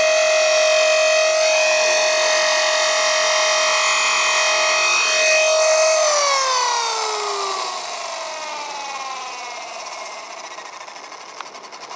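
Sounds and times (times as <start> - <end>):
rc helicopter motor whine: 0.0 - 11.9.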